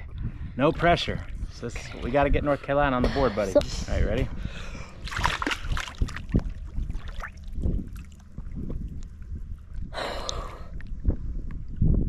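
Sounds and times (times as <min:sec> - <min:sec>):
water sloshing and lapping: 0:00.6 - 0:03.0, 0:04.1 - 0:11.2
water splashing: 0:04.8 - 0:09.9.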